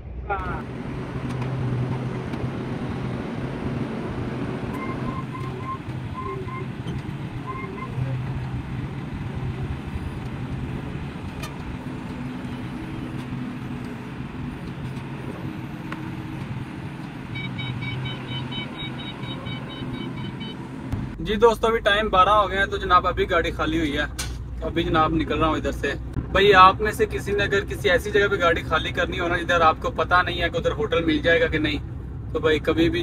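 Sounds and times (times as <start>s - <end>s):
forklift engine running: 0.1s - 21.2s
warning beeper beeping: 17.3s - 20.6s.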